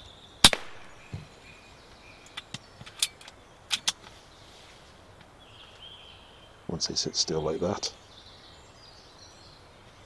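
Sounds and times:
air rifle shot crack: 0.4 - 1.0.

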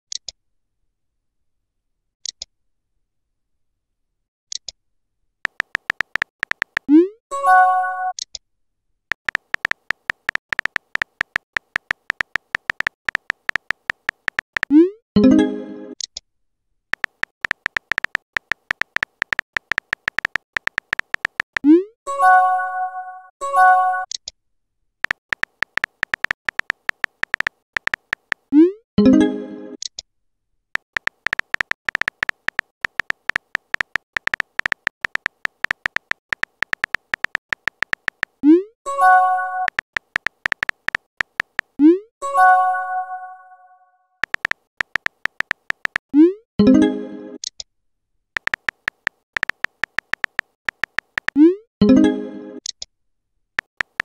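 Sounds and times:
keyboard typing beeps: 5.5 - 8.2, 9.1 - 14.9, 17.0 - 22.4, 25.0 - 29.2, 30.8 - 42.0, 44.2 - 46.4, 48.4 - 52.1, 53.6 - 54.0.

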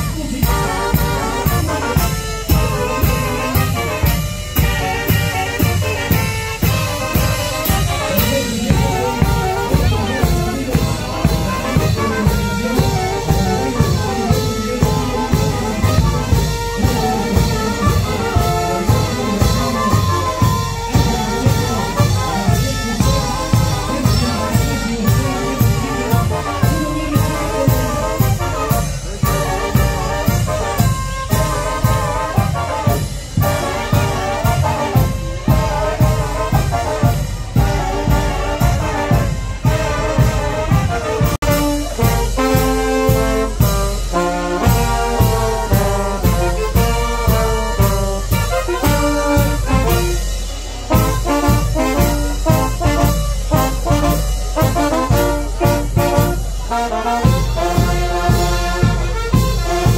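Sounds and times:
brass band playing carnival music: 0.0 - 59.9
steady drum beat: 0.0 - 59.9.

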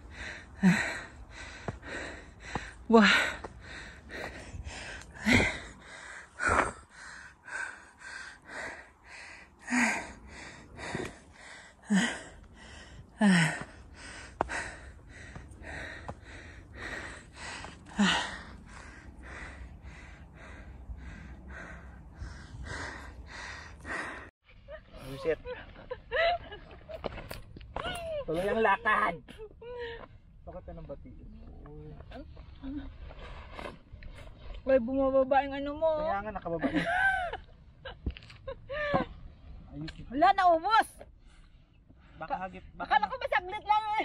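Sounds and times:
person panting hard: 0.0 - 24.3.

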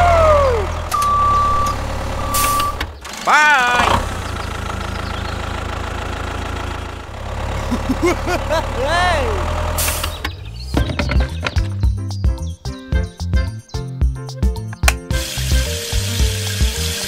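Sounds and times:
low engine rumble: 0.0 - 12.0
short beeps: 0.9 - 2.8.

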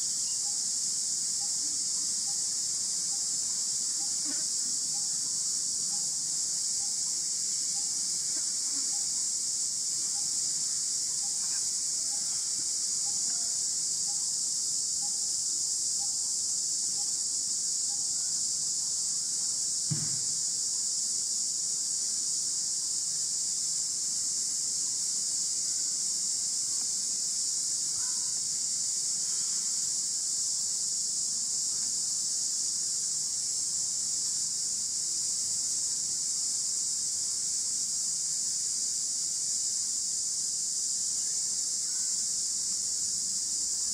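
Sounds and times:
insect chorus buzzing: 0.0 - 43.9
soft knock: 19.9 - 20.3.

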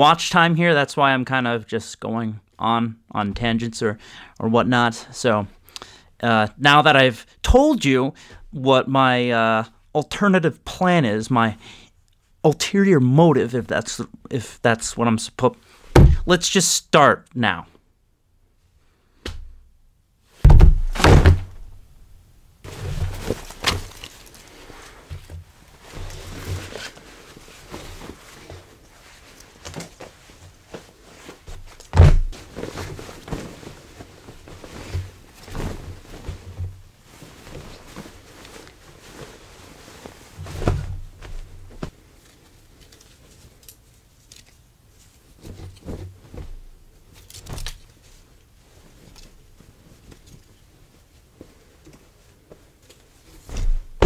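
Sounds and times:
dull thumps on table: 15.9 - 16.3, 20.4 - 21.7
fabric rustling: 22.6 - 54.0.

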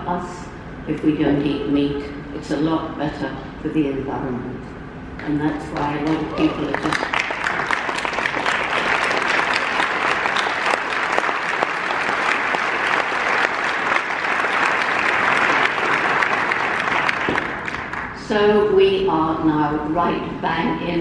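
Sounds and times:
audience applauding: 5.6 - 18.2.

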